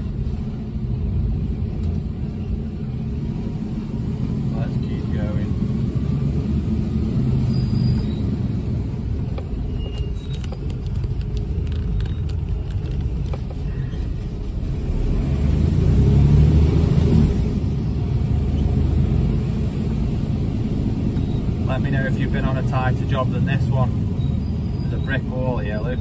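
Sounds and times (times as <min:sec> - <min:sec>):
truck diesel engine rumble: 0:00.0 - 0:26.0.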